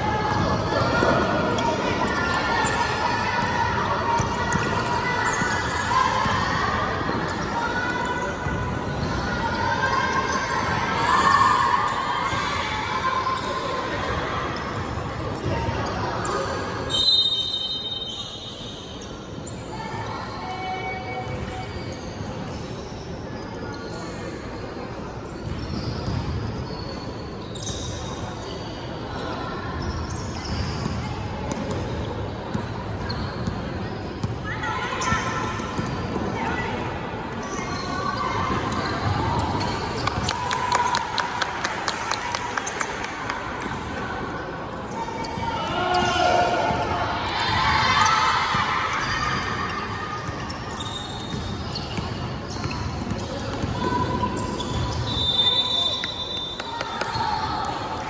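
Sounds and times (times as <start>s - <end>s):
sneakers squeaking on floor: 0.0s - 40.5s, 44.8s - 58.0s
basketball bouncing on court: 25.4s - 26.6s, 30.5s - 34.4s.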